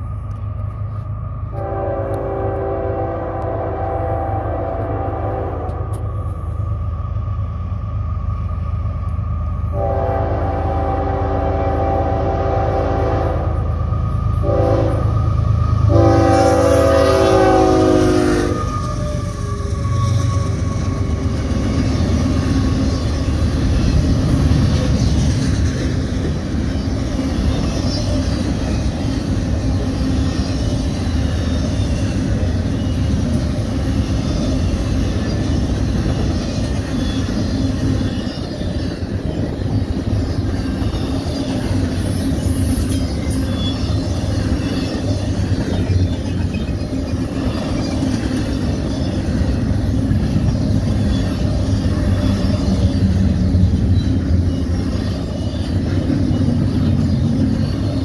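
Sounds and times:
train cars rumbling on rails: 0.0 - 58.0
locomotive air horn chord: 1.5 - 6.1, 9.7 - 13.6, 14.4 - 15.2, 15.9 - 18.7.

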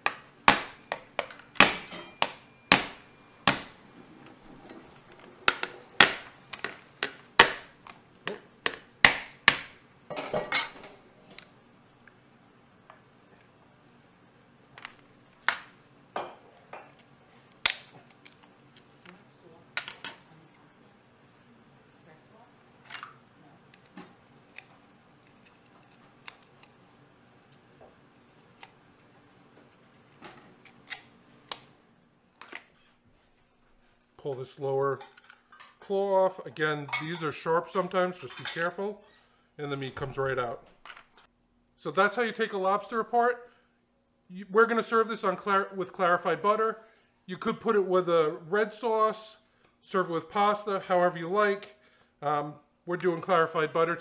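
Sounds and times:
knife chopping shell on metal pan: 0.0 - 3.8.

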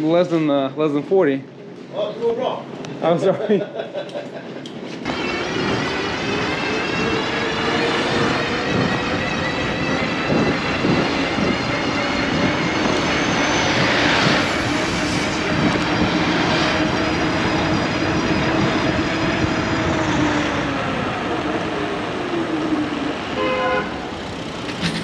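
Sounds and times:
wind and road noise: 4.4 - 25.0
electric motor whine: 5.0 - 24.8
car horn toot: 23.3 - 24.2.

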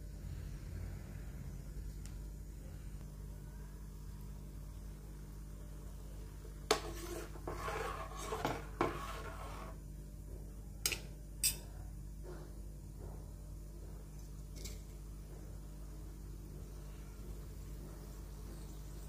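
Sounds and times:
spatula scraping a pan: 6.7 - 9.8.

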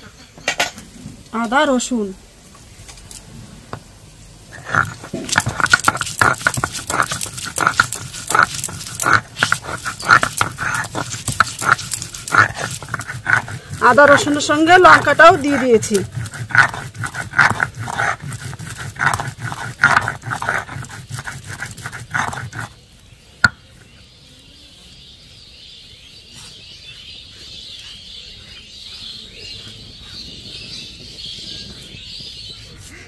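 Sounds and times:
stone roller grinding paste: 4.5 - 22.8.

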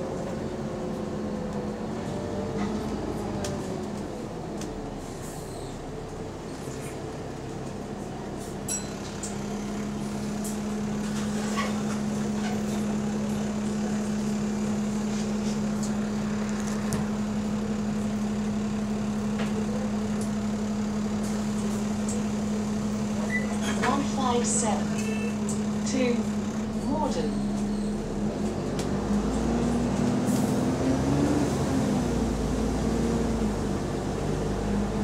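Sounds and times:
bus engine and road rumble: 0.0 - 35.0
engine cooling fan drone: 0.0 - 35.0.

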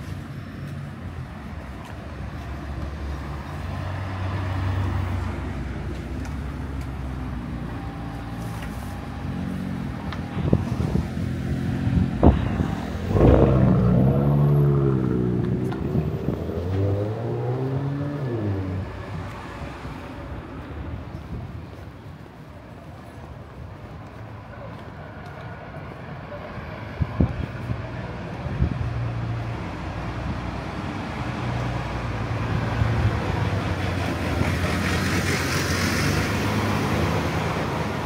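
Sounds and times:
car engines running: 0.0 - 22.2
engine revving up and down: 11.5 - 19.0.

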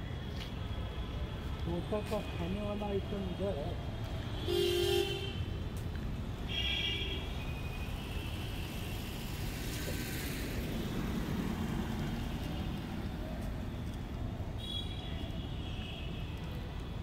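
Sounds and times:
road traffic rumbling: 0.0 - 15.4
car horn: 4.4 - 5.5.

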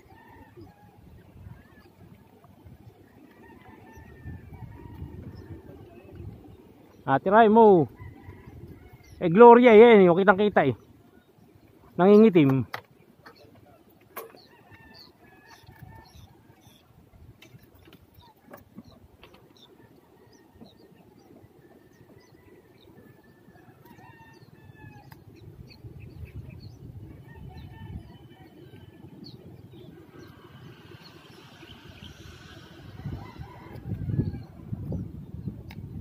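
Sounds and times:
faint rooster crowing: 0.0 - 1.8, 3.1 - 6.1, 27.2 - 29.4, 30.1 - 34.8.

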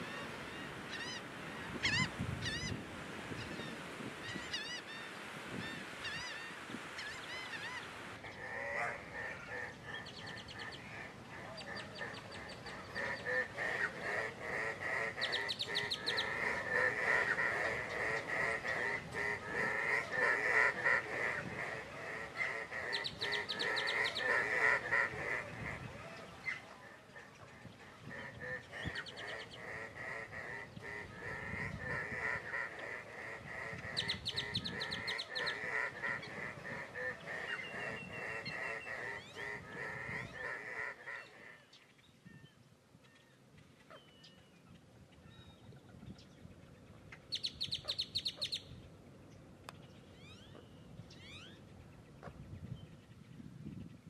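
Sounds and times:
ducks calling: 0.0 - 41.7
single bird calls: 50.1 - 51.6.

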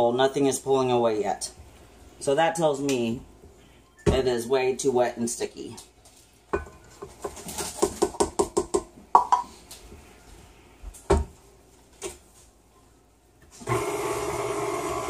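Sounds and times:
stand mixer motor humming: 13.6 - 15.0.

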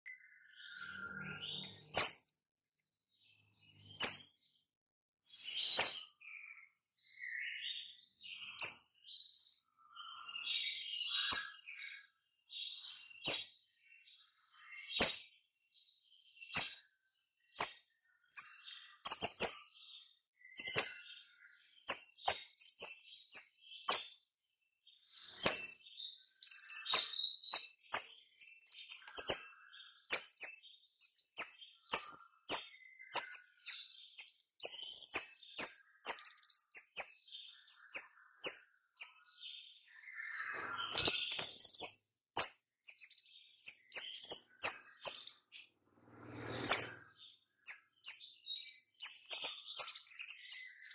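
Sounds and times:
soft bird twittering: 0.0 - 2.4, 3.0 - 4.6, 5.3 - 50.9
bird sharp high calls: 0.4 - 2.3, 3.8 - 4.4, 5.4 - 6.2, 10.0 - 11.9, 17.5 - 19.8, 20.5 - 21.2, 21.8 - 24.2, 25.2 - 25.8, 26.4 - 39.3, 39.9 - 45.5, 46.3 - 50.9.

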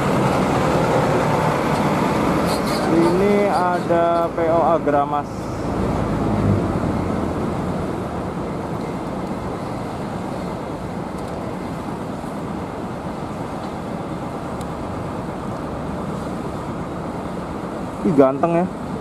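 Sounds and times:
bus diesel engine droning: 0.0 - 18.0.

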